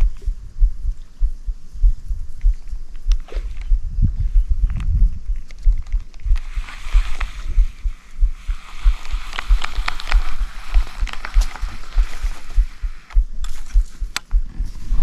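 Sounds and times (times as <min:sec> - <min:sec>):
steady hiss: 0:00.0 - 0:15.0
scattered clicks: 0:04.6 - 0:07.4, 0:09.0 - 0:14.4.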